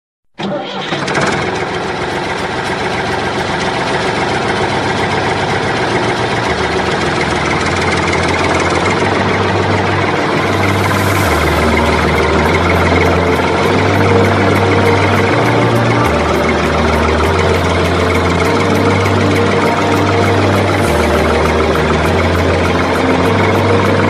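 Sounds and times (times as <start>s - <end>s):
engine idling: 0.8s - 24.0s.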